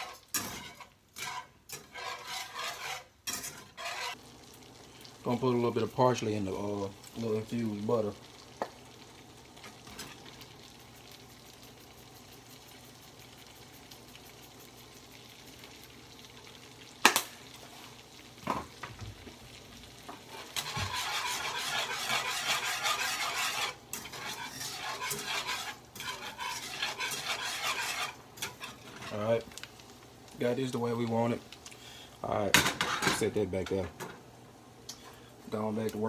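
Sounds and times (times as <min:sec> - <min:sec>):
whisk scraping and stirring: 0:00.0 - 0:04.2, 0:20.2 - 0:29.4
butter sizzling in frying pan: 0:00.0 - 0:36.0.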